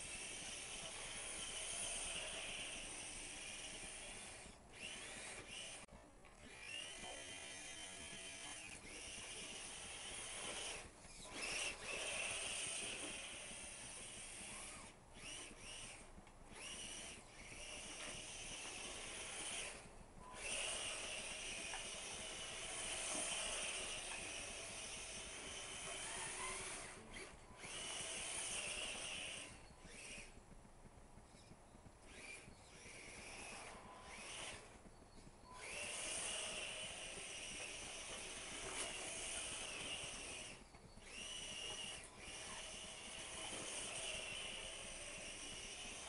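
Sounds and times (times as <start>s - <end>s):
toy truck motor whirring: 0.0s - 46.0s.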